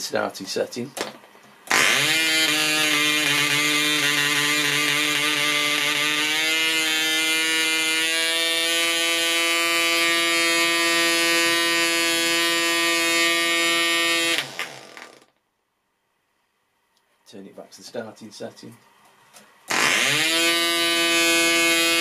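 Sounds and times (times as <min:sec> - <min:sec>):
model engine high-pitched buzz: 0:01.7 - 0:15.3, 0:19.7 - 0:22.0.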